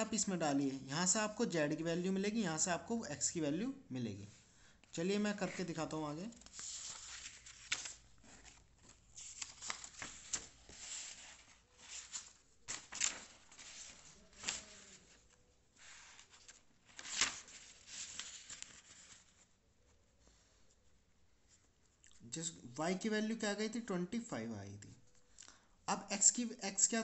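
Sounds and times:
paper rustling and sliding on desk: 6.3 - 19.5
paper crackles and scrapes: 6.3 - 19.6.

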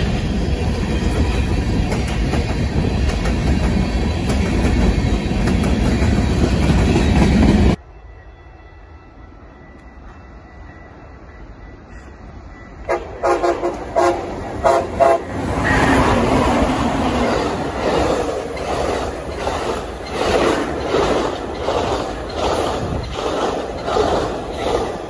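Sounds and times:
train rumble and wheel clatter: 0.0 - 25.0
train horn blasts: 12.8 - 16.2.

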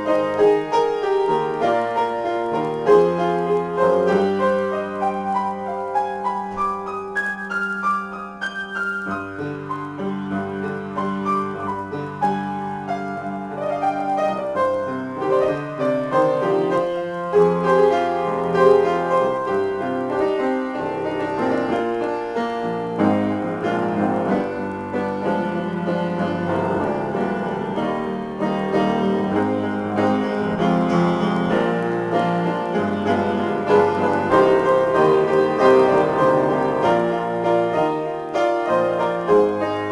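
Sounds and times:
solo piano: 0.0 - 39.9.

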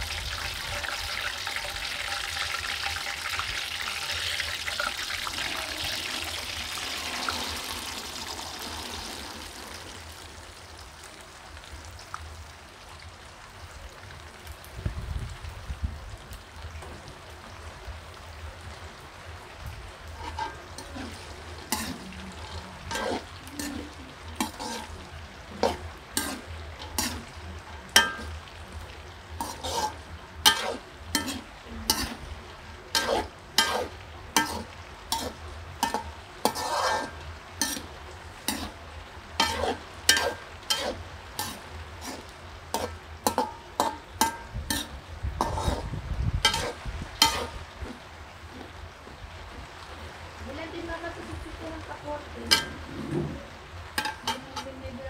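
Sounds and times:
food sizzling in oil: 0.0 - 11.4, 19.8 - 55.0
metal ladle scraping a wok: 0.6 - 9.5, 20.2 - 28.4, 29.4 - 32.3, 32.9 - 38.8, 39.4 - 48.7, 52.5 - 53.4, 54.0 - 54.8.

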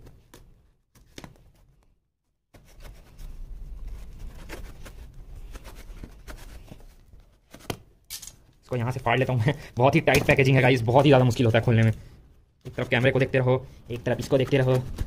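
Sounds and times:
tape and cardboard rustling: 2.5 - 8.6, 12.6 - 15.0.

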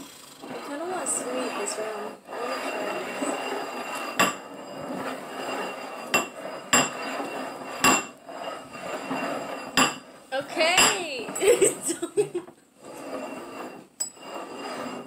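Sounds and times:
ceramic bowls scraping on wood: 0.0 - 15.0
ceramic bowls knocking: 6.1 - 7.0, 9.7 - 11.0.

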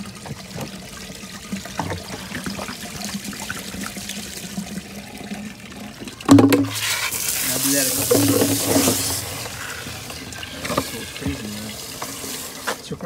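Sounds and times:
water pouring and trickling: 0.0 - 13.0.

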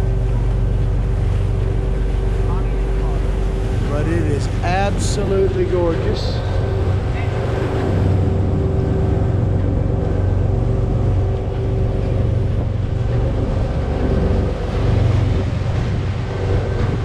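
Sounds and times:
boat engine droning: 0.0 - 17.0.

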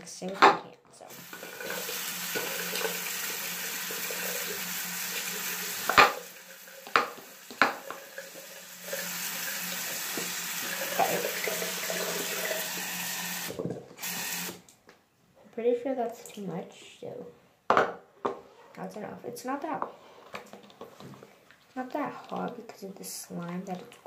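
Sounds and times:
water swishing in a bowl: 20.0 - 23.9.

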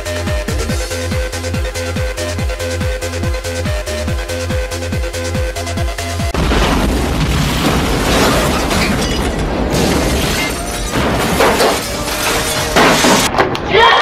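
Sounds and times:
car explosion blasts: 6.4 - 13.3
dense crashing noise: 6.4 - 13.4.

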